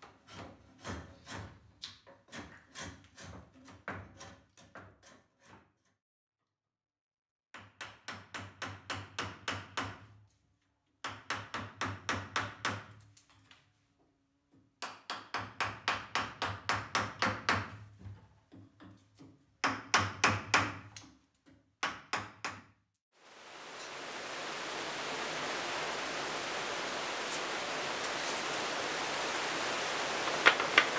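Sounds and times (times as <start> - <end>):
steady hiss: 23.2 - 30.9.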